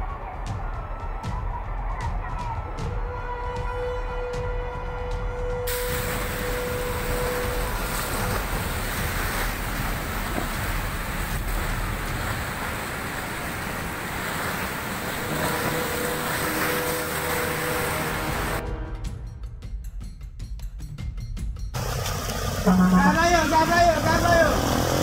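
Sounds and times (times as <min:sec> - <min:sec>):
river water rushing: 0:05.7 - 0:18.6, 0:21.8 - 0:25.0.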